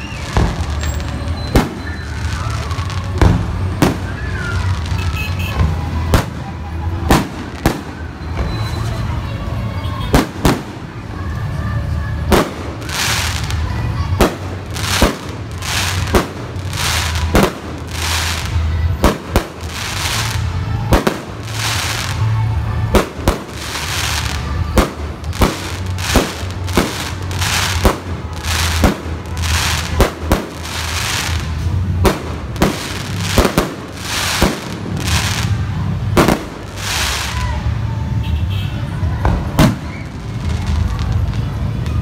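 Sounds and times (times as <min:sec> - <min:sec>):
fireworks bangs: 0:00.0 - 0:09.2, 0:09.9 - 0:11.3, 0:12.2 - 0:37.7, 0:39.0 - 0:42.0.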